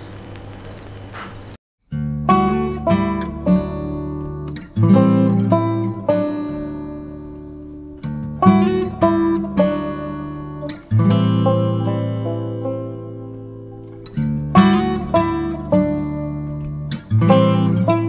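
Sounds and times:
acoustic guitar chords: 0:01.9 - 0:18.0.

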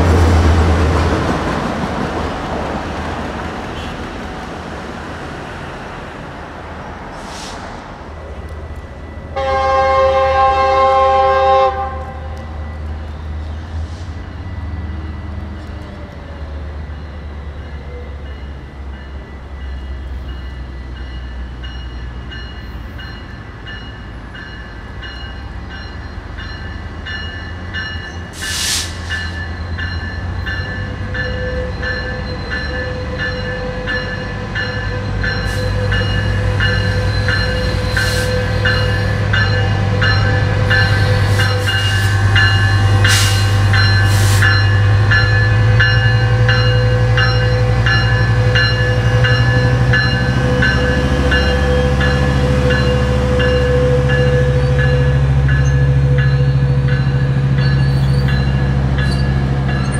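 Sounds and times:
diesel locomotive engine drone: 0:00.0 - 0:59.9
sharp bursts of hiss: 0:28.4 - 0:29.2, 0:43.0 - 0:44.6.

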